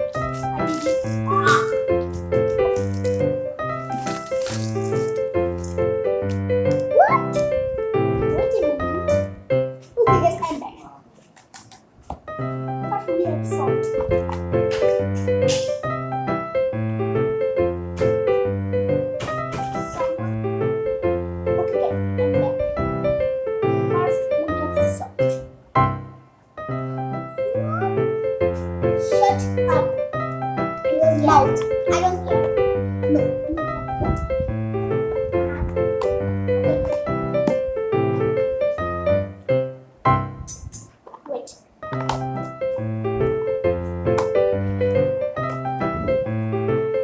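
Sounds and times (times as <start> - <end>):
short crackles: 0.0 - 7.6
piano music: 0.0 - 11.0, 12.2 - 47.0.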